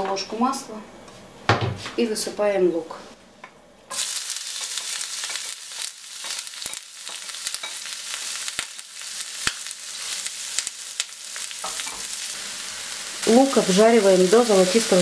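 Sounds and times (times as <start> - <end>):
onion sizzling in oil: 3.9 - 15.0.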